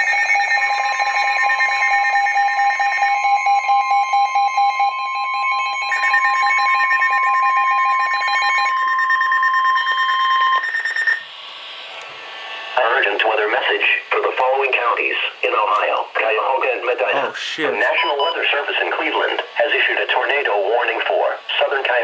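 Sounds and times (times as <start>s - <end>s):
rapid electronic alarm beeping: 0.0s - 11.8s, 17.9s - 19.9s
long steady alert tone: 17.0s - 18.4s.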